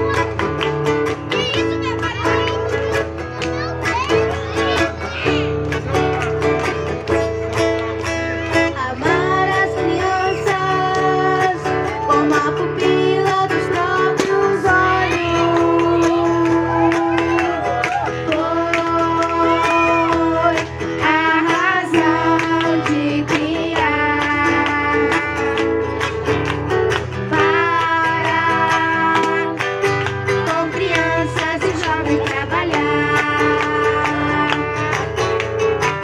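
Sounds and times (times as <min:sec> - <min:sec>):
acoustic guitar: 0:00.0 - 0:36.0
girl singing into a microphone: 0:08.6 - 0:17.3, 0:18.1 - 0:25.7, 0:27.3 - 0:35.1.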